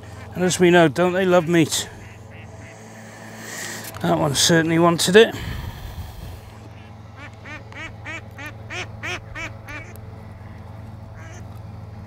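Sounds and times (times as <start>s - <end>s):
steady low hum: 0.0s - 12.0s
duck quacking: 1.0s - 3.1s, 6.7s - 10.6s, 11.2s - 11.4s.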